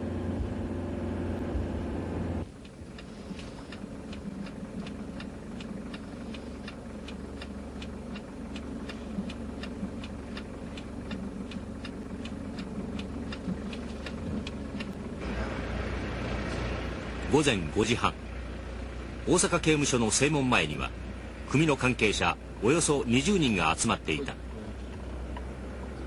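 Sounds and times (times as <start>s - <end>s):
low engine idle: 0.0s - 26.0s
road noise inside moving car: 0.0s - 26.0s
turn signal relay clicking: 2.4s - 15.0s.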